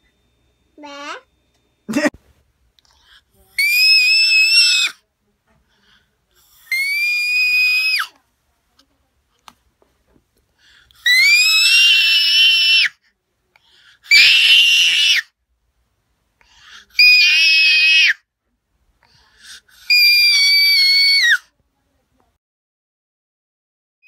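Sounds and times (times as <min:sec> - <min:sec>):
shrill high-pitched screams: 0:03.6 - 0:05.0, 0:06.6 - 0:08.1, 0:11.0 - 0:13.0, 0:14.1 - 0:15.3, 0:17.0 - 0:18.2, 0:19.8 - 0:21.5.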